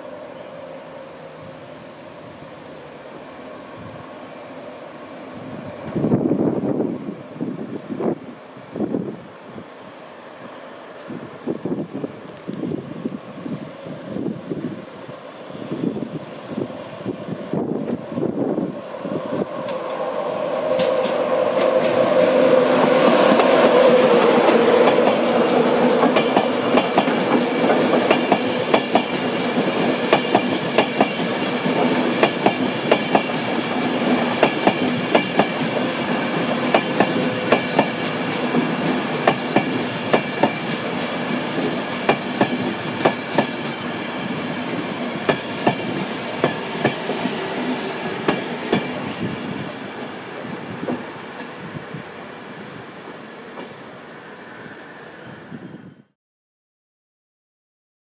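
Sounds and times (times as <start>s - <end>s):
electric locomotive hum: 0.0s - 56.2s
train wheels clicking over rail joints: 20.7s - 49.1s.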